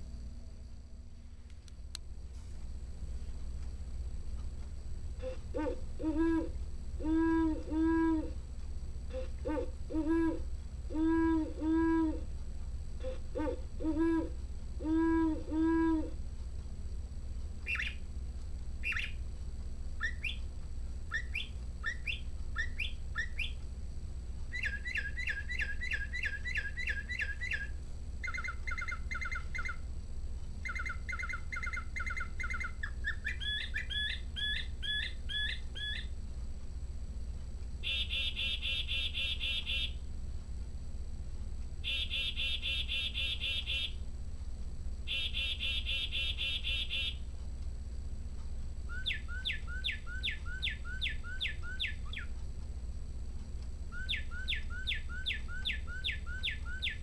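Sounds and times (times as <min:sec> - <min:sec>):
chickadee call: 0:05.2 - 0:08.4, 0:09.1 - 0:12.3, 0:13.0 - 0:16.2, 0:24.5 - 0:29.8, 0:30.6 - 0:36.1, 0:37.8 - 0:40.0, 0:41.8 - 0:44.0, 0:45.1 - 0:47.2, 0:48.9 - 0:52.3, 0:53.9 - 0:57.0
owl hoots: 0:05.2 - 0:08.4, 0:09.1 - 0:12.3, 0:13.0 - 0:16.2, 0:18.8 - 0:19.2, 0:21.1 - 0:23.6, 0:24.5 - 0:29.9, 0:30.6 - 0:36.1, 0:37.8 - 0:40.0, 0:41.8 - 0:44.0, 0:45.1 - 0:47.2, 0:48.9 - 0:52.4, 0:53.9 - 0:57.0
mockingbird song: 0:17.6 - 0:18.1, 0:18.8 - 0:19.2, 0:20.0 - 0:20.5, 0:21.1 - 0:23.6, 0:24.5 - 0:29.8, 0:30.6 - 0:36.2, 0:37.8 - 0:40.0, 0:41.8 - 0:44.0, 0:45.1 - 0:47.2, 0:48.9 - 0:52.4, 0:53.9 - 0:57.0.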